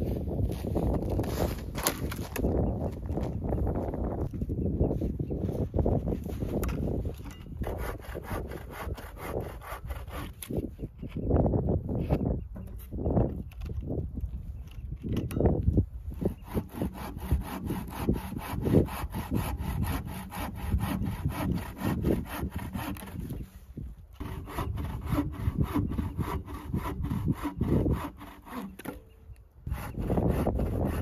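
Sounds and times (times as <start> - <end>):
bow saw cutting branch: 1.1 - 2.7, 6.5 - 11.2, 16.2 - 23.5, 24.2 - 31.0.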